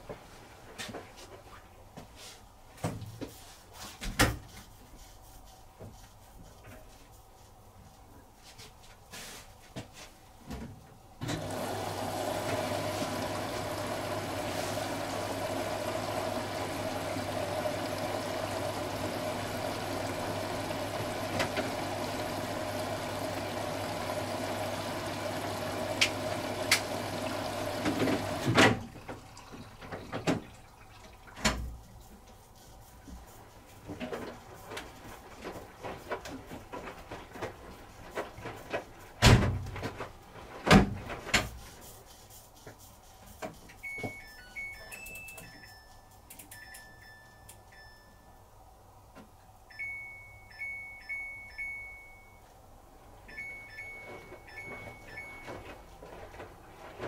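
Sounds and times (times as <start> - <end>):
washing machine drum tumbling: 11.2 - 31.8, 33.9 - 41.7.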